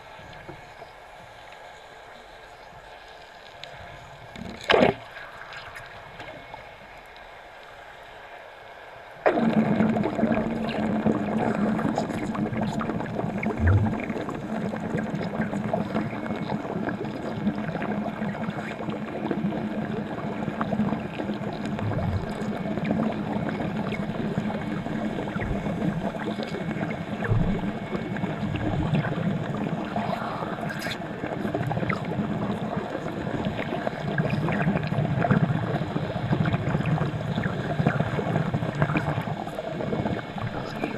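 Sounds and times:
low hum: 13.5 - 14.3, 21.6 - 29.8.

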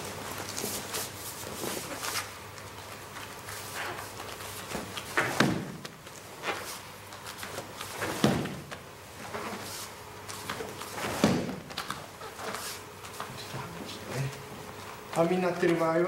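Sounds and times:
thuds on kick pad: 5.3 - 5.8, 11.1 - 11.7.

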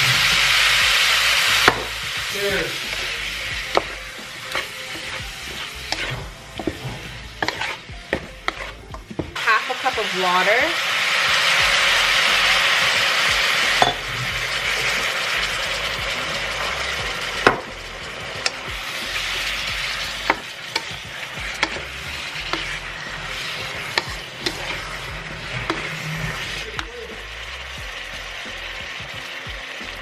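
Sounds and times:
water hissing into steam: 0.0 - 7.8, 9.4 - 30.0
food sizzling in a wok: 0.0 - 30.0
spatula knocking against wok: 5.9 - 9.4, 20.3 - 22.8, 23.9 - 24.8.

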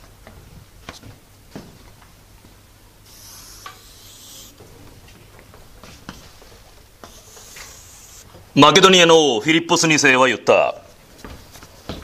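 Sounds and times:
scratchy rub: 3.1 - 4.6, 7.0 - 8.3.

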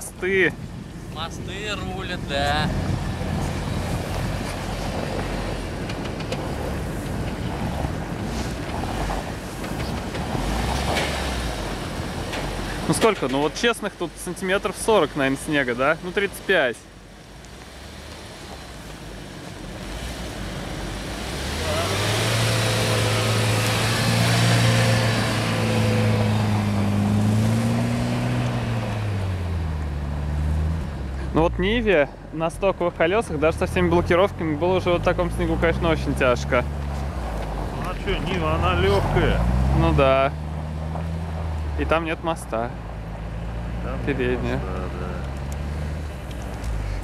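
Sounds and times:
wind buffeting microphone: 0.0 - 12.9
suv engine under load: 2.2 - 32.3
suv engine pulling under load: 2.7 - 16.2.

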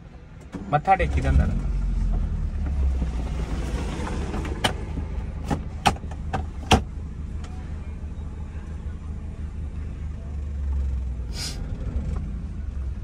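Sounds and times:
car engine running: 0.0 - 13.0
clicks and knocks inside car: 2.1 - 7.6.

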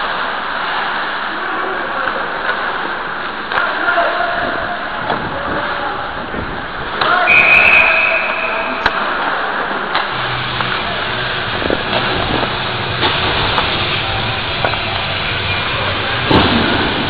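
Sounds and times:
steady rushing noise: 0.0 - 17.0
skates sticks and puck knocking: 11.8 - 15.2.

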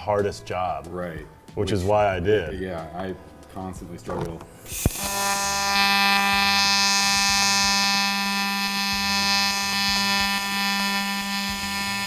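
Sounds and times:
welding arc buzzing: 4.6 - 12.0.

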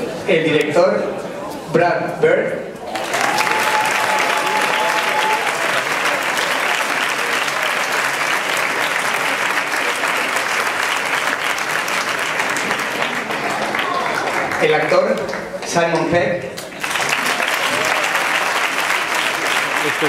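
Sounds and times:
audience applauding: 2.9 - 15.4, 16.6 - 20.0.

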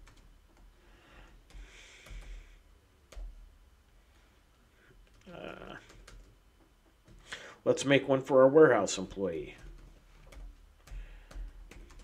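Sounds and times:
computer keyboard key presses: 1.4 - 2.4, 5.8 - 6.4, 9.5 - 12.0.

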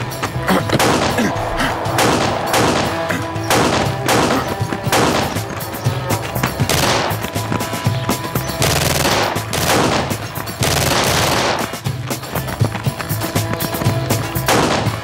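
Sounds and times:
dramatic background music: 0.0 - 12.7, 14.4 - 15.0
gunshots: 0.7 - 5.8, 6.4 - 7.8, 8.6 - 11.9, 14.5 - 15.0.

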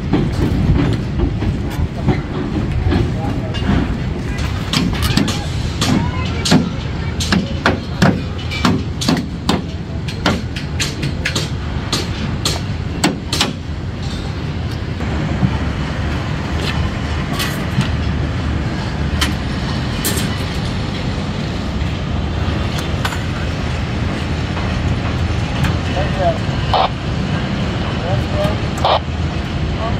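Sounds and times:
metal knocks and clanks: 0.0 - 14.4.

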